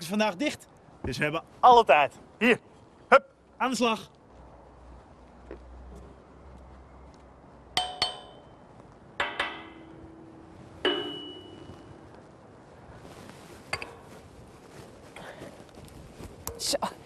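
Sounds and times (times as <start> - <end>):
wrench clinking on steel beam: 7.8 - 8.6, 9.2 - 11.7.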